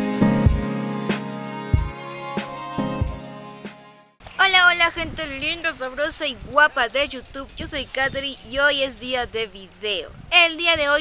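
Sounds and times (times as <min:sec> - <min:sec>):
instrumental music with soft beat: 0:00.0 - 0:04.2.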